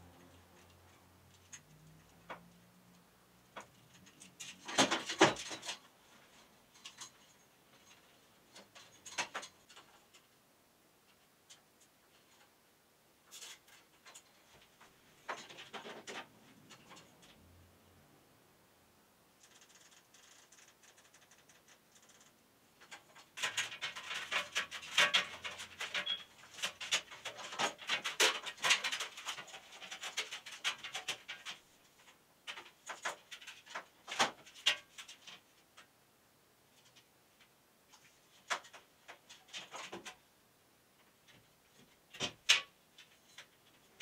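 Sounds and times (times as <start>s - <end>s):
rustling of cords: 0.0s - 10.4s, 13.2s - 17.9s, 19.4s - 35.9s.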